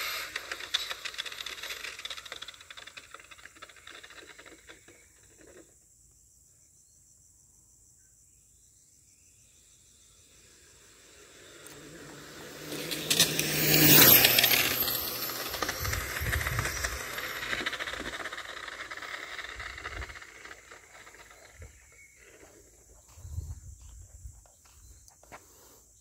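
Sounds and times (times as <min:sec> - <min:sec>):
rc car motor whine passing: 0:00.0 - 0:05.7, 0:09.8 - 0:23.9.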